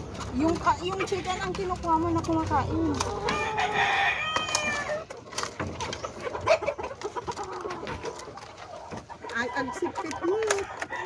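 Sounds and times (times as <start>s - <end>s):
chickens pecking taps: 0.0s - 11.0s
chickens soft clucking: 0.0s - 11.0s.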